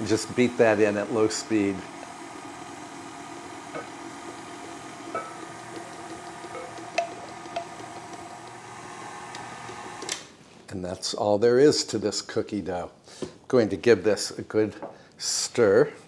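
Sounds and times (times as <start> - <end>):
stand mixer running: 0.0 - 10.2.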